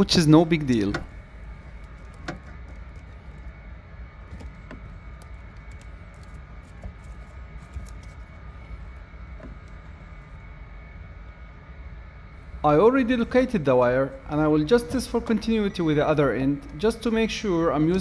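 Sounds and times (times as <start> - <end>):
rustling of wiring: 0.0 - 10.5
low background hum: 0.0 - 18.0.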